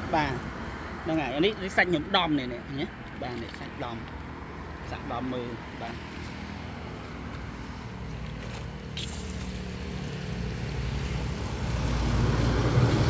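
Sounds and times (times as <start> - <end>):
vehicle engine rumbling: 0.0 - 13.0
brief hiss: 9.0 - 9.6.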